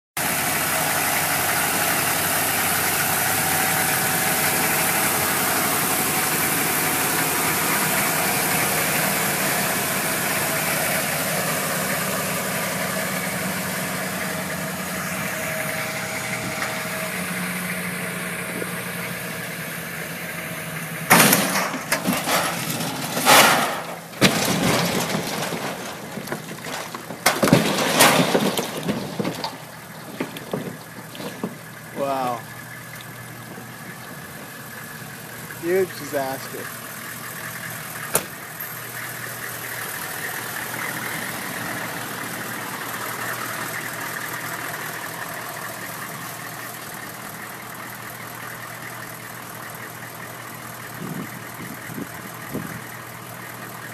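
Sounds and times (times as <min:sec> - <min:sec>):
pickup truck engine running: 0:00.2 - 0:53.9
loud sudden noises: 0:21.1 - 0:31.5.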